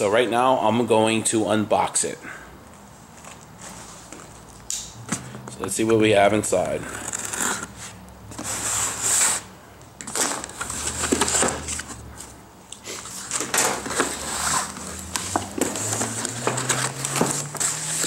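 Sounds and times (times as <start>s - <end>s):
cardboard rustling and scraping: 6.6s - 18.0s
knife slitting packing tape: 6.9s - 7.9s.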